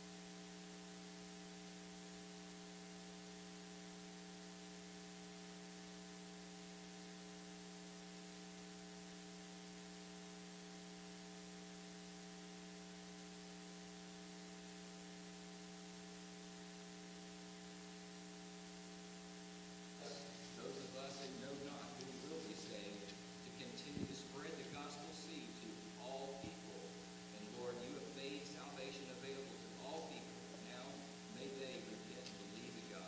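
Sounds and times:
electrical mains hum: 0.0 - 33.0
faint hiss: 0.0 - 33.0
man's voice: 20.0 - 33.0.

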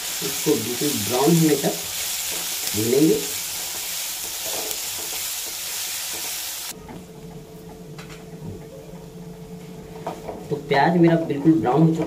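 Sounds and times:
onions sizzling in hot oil: 0.0 - 6.8.

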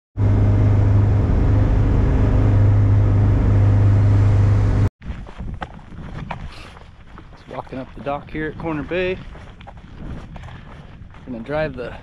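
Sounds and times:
boat engine running: 0.2 - 4.9
faint wind: 0.2 - 12.0.

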